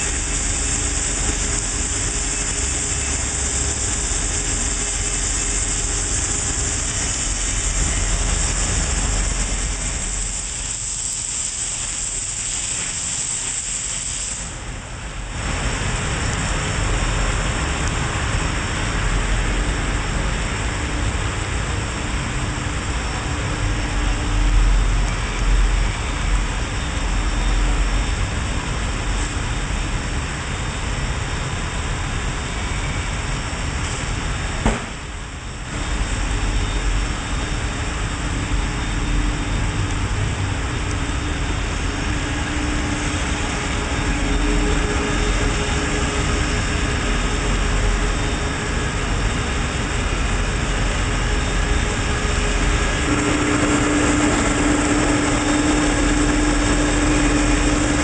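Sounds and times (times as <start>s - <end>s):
factory machinery running: 0.0s - 58.0s
grinding wheel on metal shaft: 50.8s - 58.0s.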